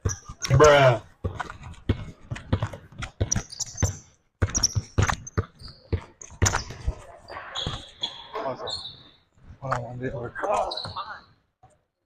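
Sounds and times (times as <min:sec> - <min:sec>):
basketball bouncing on wooden floor: 0:00.0 - 0:07.0
sneakers squeaking on court: 0:00.0 - 0:09.5, 0:10.6 - 0:11.4.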